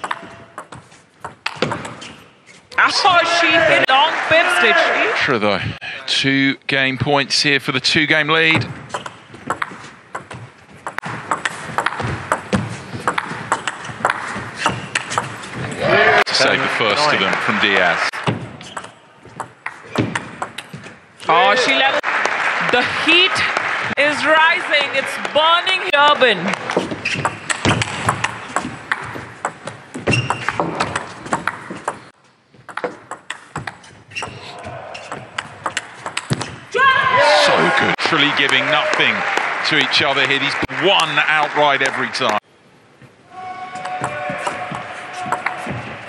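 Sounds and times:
ball bouncing on table: 0:00.0 - 0:02.0, 0:08.9 - 0:15.3, 0:26.7 - 0:32.0, 0:32.7 - 0:34.4.

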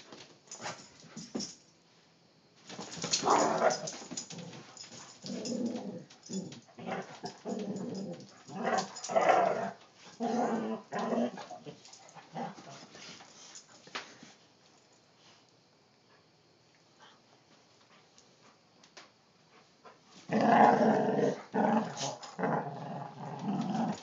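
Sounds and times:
dogs growling: 0:03.2 - 0:12.9, 0:20.3 - 0:24.0.

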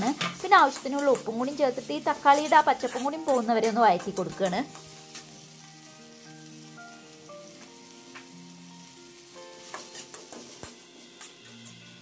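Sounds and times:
vegetables sizzling in pan: 0:00.0 - 0:12.0
metal spatula scraping pan: 0:00.1 - 0:05.4, 0:09.6 - 0:11.8.

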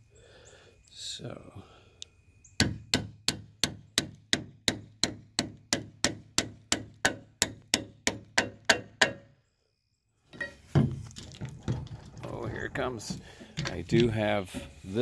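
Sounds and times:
hammer tapping wood shims: 0:02.6 - 0:09.2.

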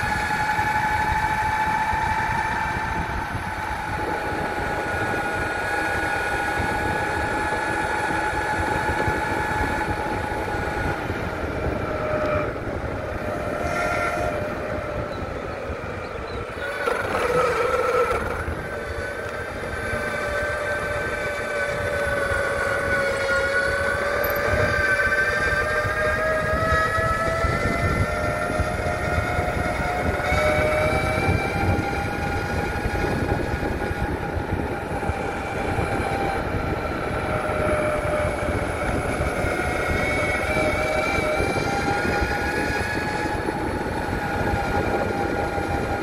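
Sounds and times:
electric motors whining: 0:00.0 - 0:46.0
wheels rolling rumble: 0:00.0 - 0:46.0.

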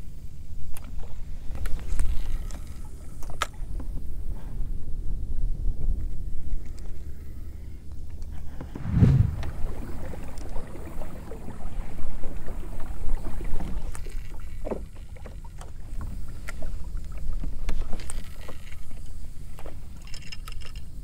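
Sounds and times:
wind on microphone: 0:08.7 - 0:10.1.

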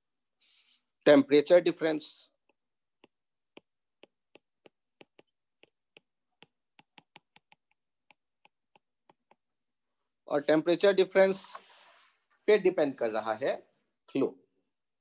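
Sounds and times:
stylus tapping on pen tablet: 0:02.4 - 0:09.7.

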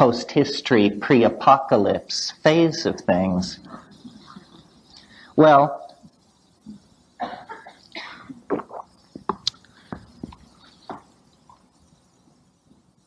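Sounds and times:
person coughing: 0:07.2 - 0:08.7.

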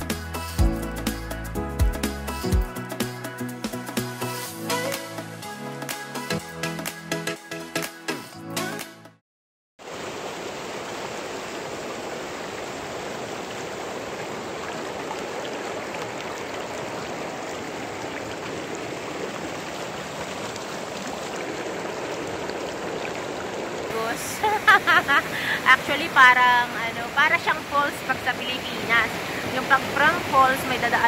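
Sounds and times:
stream water rushing: 0:09.8 - 0:31.0.

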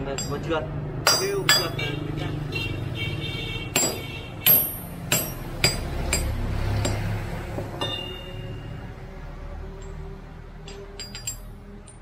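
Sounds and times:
hammer striking steel: 0:00.0 - 0:01.9, 0:03.7 - 0:08.4, 0:10.6 - 0:12.0
metallic ringing tone: 0:07.8 - 0:08.7.

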